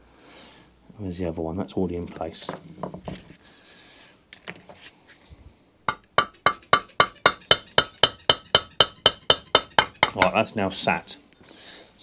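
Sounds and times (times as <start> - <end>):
rapid hammer taps on metal: 5.9 - 10.4.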